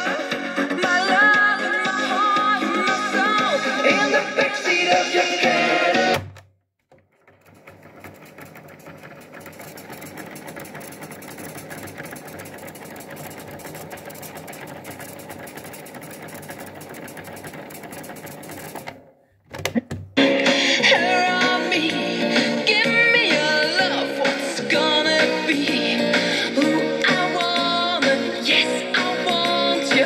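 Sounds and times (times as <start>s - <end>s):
tape transport whirring and ticking: 6.1s - 19.1s.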